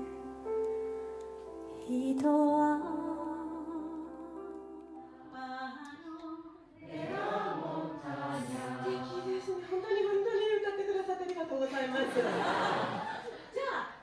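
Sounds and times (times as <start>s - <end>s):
group of voices singing: 6.8s - 9.7s.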